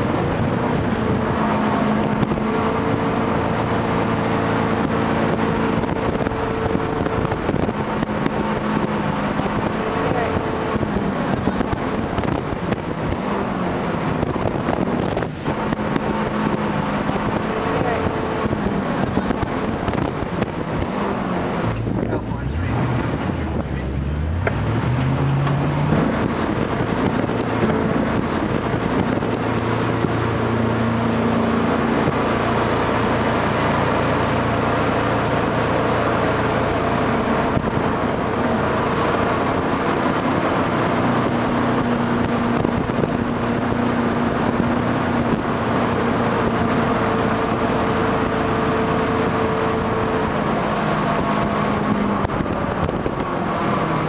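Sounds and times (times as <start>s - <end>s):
boat engine running hard: 0.0s - 54.0s.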